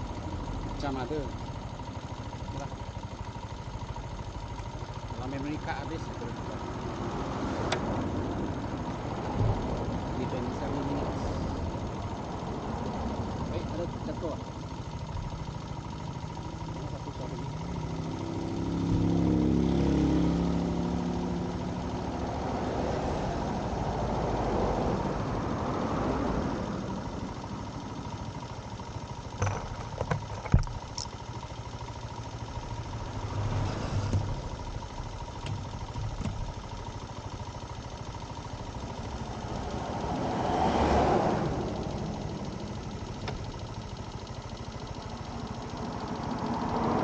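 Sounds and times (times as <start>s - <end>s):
vehicles passing: 5.3s - 14.4s, 16.7s - 28.3s, 32.6s - 37.4s, 38.2s - 43.8s, 45.2s - 47.0s.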